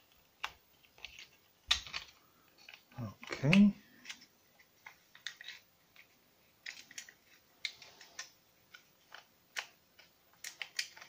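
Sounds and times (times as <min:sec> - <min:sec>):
plastic parts clicking: 0:00.1 - 0:11.0.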